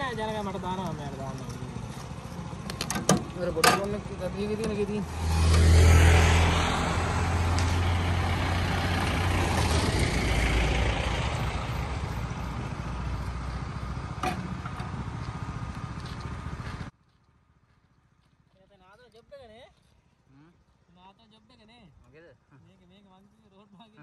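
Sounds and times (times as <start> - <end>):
vehicle engine passing: 0.0 - 16.9
road noise: 0.0 - 24.0.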